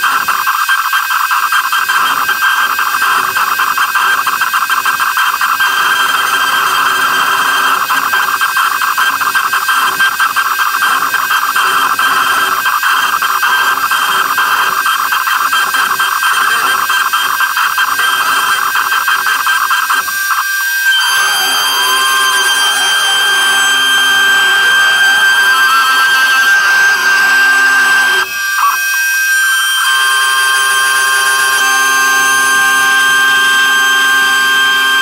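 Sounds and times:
crackle of wood cutting: 0:00.0 - 0:34.8
router spindle high whine: 0:00.0 - 0:35.0.

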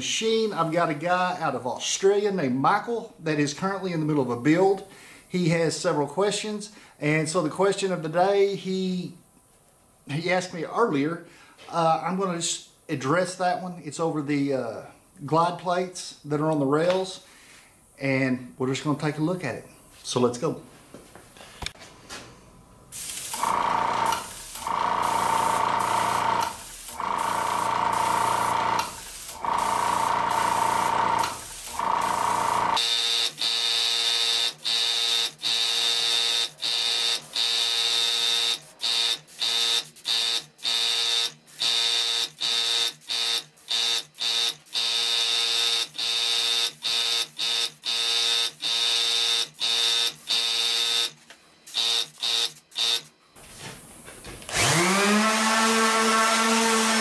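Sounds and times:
airbrush air hiss: 0:22.9 - 0:32.6
electric buzz: 0:22.9 - 0:53.2.

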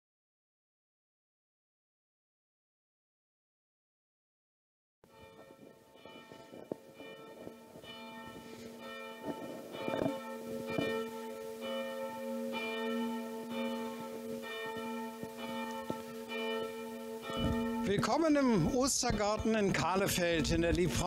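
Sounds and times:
church bell ringing: 0:05.0 - 0:21.0.

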